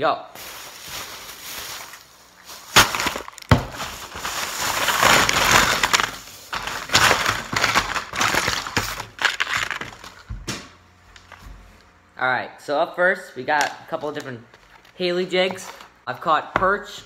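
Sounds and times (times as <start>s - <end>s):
plastic bag rustling: 0.3s - 10.4s.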